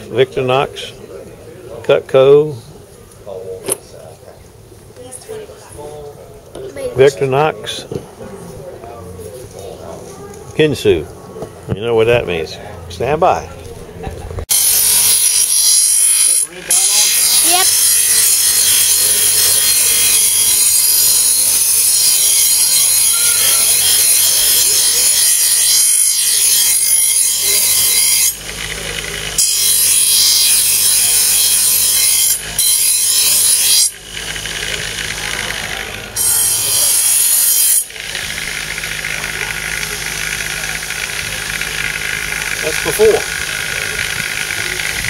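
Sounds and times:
grinder motor hum: 0:14.0 - 0:45.0
knife grinding on bench grinder: 0:14.5 - 0:45.0.

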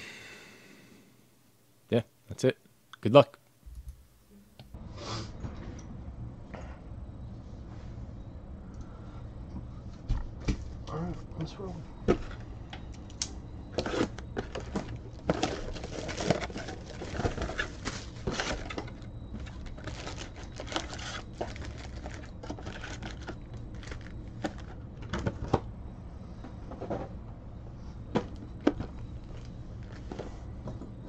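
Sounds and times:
foil packs crinkling: 0:15.3 - 0:24.8.

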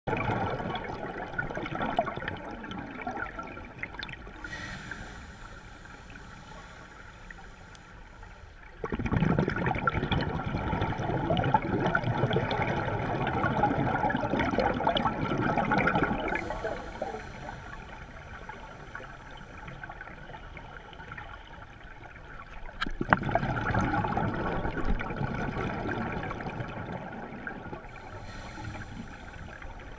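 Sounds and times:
muffled underwater gurgling: 0:08.6 - 0:21.7.

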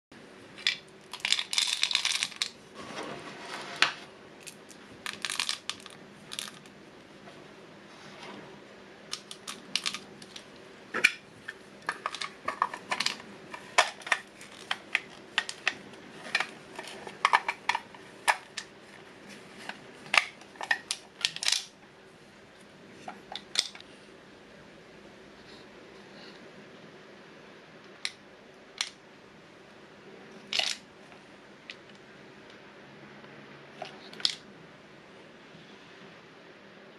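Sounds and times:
candies rattling against plastic: 0:00.6 - 0:02.6, 0:04.4 - 0:06.7, 0:09.1 - 0:10.5, 0:11.8 - 0:18.7
plastic toy parts clicking: 0:00.6 - 0:02.6, 0:04.4 - 0:06.7, 0:09.1 - 0:11.2, 0:11.8 - 0:18.7, 0:20.1 - 0:21.7, 0:30.5 - 0:30.8, 0:34.1 - 0:34.4.

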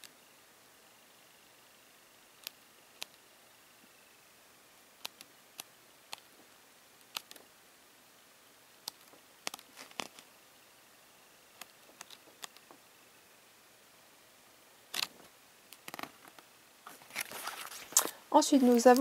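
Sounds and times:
paper pages turning: 0:09.5 - 0:10.2, 0:15.8 - 0:19.0.

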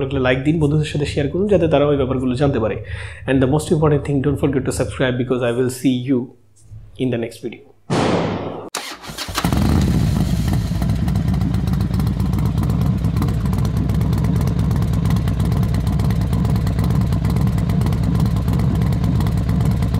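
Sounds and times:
motorcycle engine running: 0:09.1 - 0:19.9.

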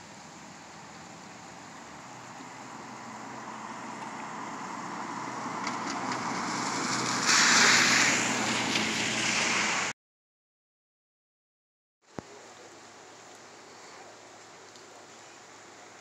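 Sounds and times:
low engine hum: 0:00.0 - 0:09.9
tyre hiss on wet road: 0:00.0 - 0:09.9, 0:12.2 - 0:16.0.

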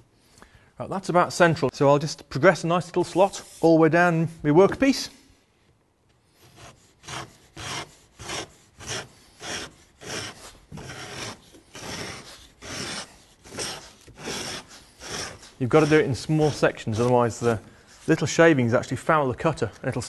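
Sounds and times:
gauge scraping wood: 0:06.3 - 0:18.5.

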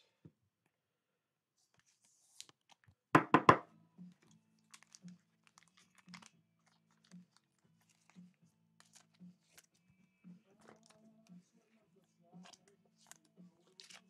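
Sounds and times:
cards knocked on tabletop: 0:03.2 - 0:03.6.

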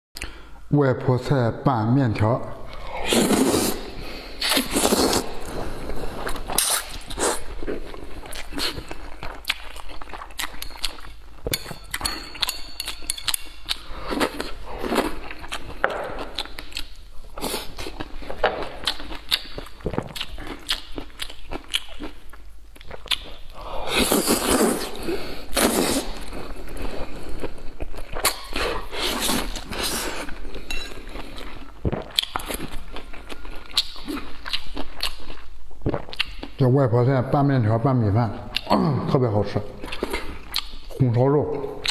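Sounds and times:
slurping noodles: 0:02.8 - 0:08.9, 0:23.7 - 0:27.4
wet chewing: 0:04.4 - 0:25.0, 0:25.6 - 0:36.6.

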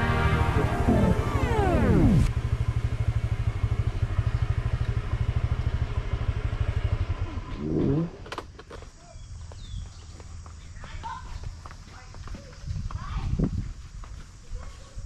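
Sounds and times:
scooter engine idling: 0:00.0 - 0:08.6.

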